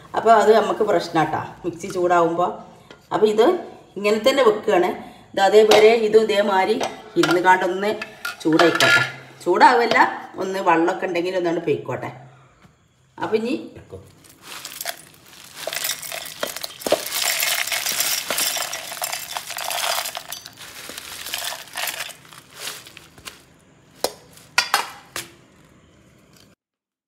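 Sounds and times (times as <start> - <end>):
spices rattling into steel jar: 14.4 - 23.4, 24.0 - 25.1.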